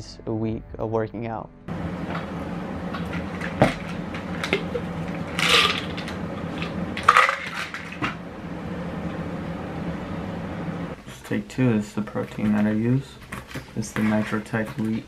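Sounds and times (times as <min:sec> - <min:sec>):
steady low hum: 0:01.7 - 0:15.0
scraping rustling noises: 0:12.2 - 0:15.0.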